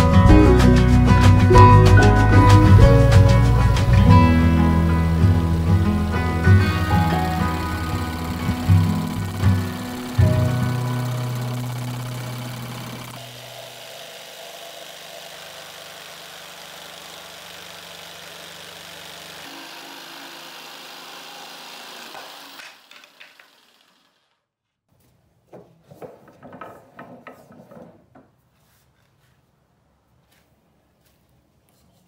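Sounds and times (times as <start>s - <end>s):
jigsaw cutting plywood: 5.1s - 24.5s
irregular scraping and tapping: 25.5s - 29.4s.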